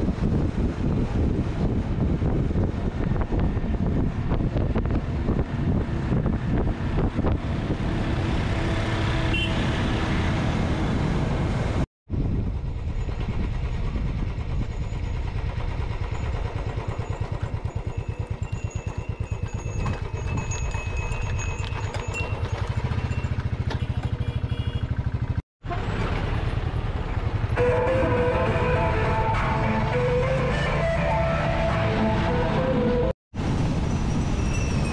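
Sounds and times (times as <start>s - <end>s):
wind noise: 0.0s - 23.3s, 33.4s - 34.9s
motorcycle engine running: 12.2s - 28.0s
music: 27.6s - 33.1s.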